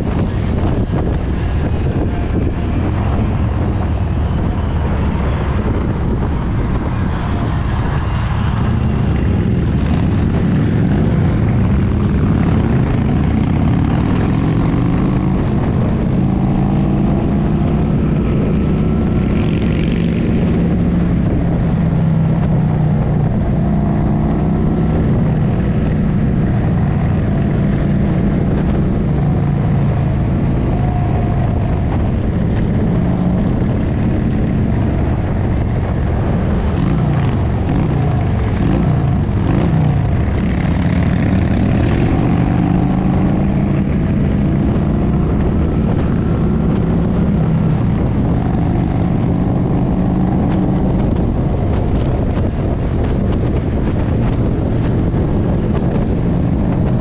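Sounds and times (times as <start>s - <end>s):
motorcycle engines cruising: 0.0s - 57.0s.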